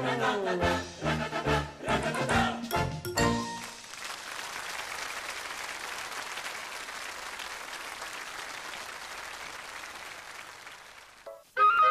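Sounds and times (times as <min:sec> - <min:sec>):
audience applauding: 0:03.2 - 0:11.4.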